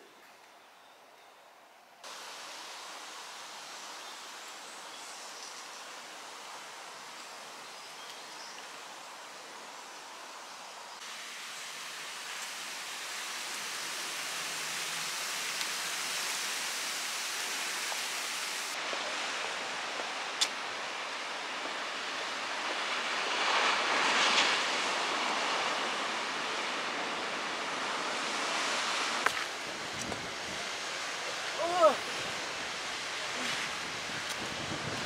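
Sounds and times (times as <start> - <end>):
surf breaking on rocks: 22.1 - 35.0
wind on microphone: 29.6 - 30.9, 31.5 - 35.0.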